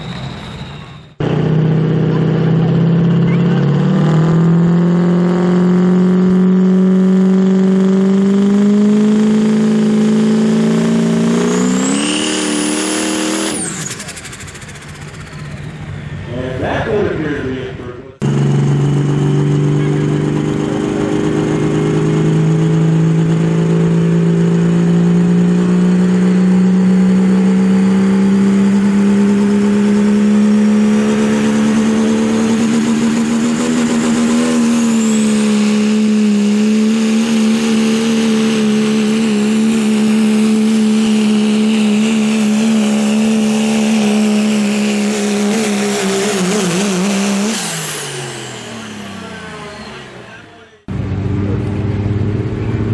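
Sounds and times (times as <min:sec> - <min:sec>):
high whistle: 0:00.0 - 0:01.2
diesel truck engine high-revving: 0:00.0 - 0:52.9.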